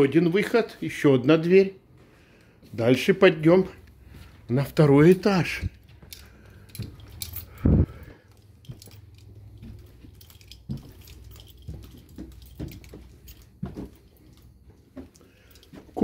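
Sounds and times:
footsteps on carpeted stairs: 5.6 - 16.0.

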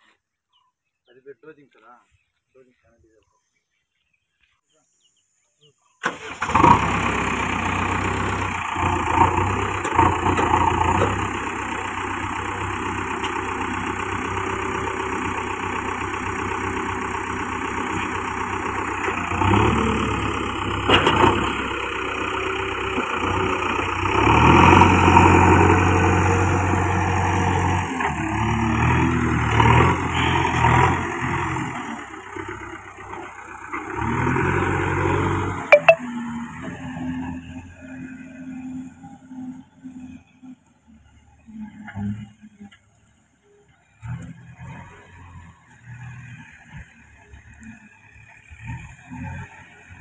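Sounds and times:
diesel engine idling and revving: 6.1 - 50.0.

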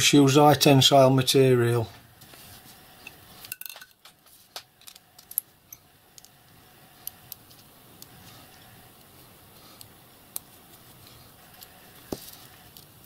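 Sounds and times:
small metal parts clinking: 3.4 - 4.2, 4.8 - 6.3.

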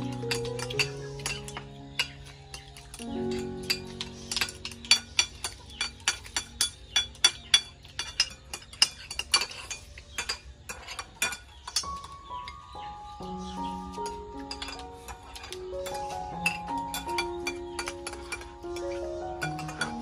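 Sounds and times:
cutlery clinking on ceramic plates: 0.0 - 12.6, 14.0 - 20.0
background music with held notes: 0.0 - 20.0.

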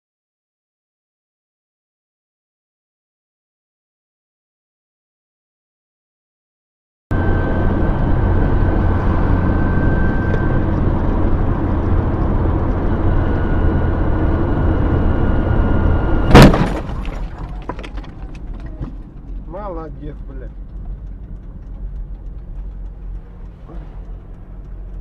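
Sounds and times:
road and engine rumble in car: 7.1 - 25.0
vehicle collision bang: 16.2 - 19.0.

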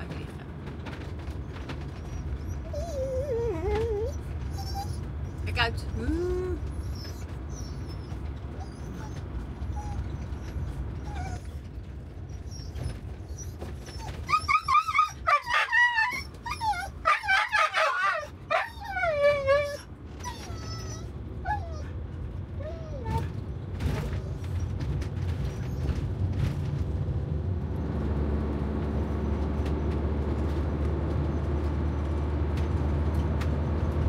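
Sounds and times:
low steady rumble: 0.0 - 34.0
dog whining and yelping: 1.5 - 26.1.

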